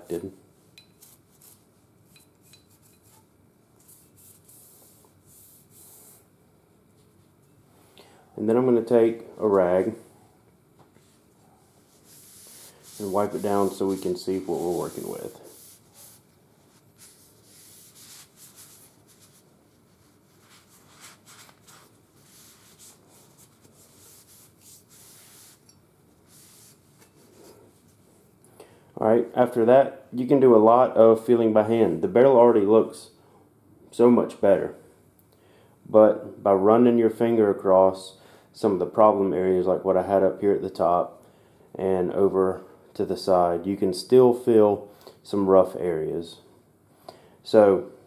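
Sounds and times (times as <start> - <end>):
cloth rag wiping metal barrel: 11.8 - 25.6
bristle brush scrubbing metal: 11.8 - 27.5.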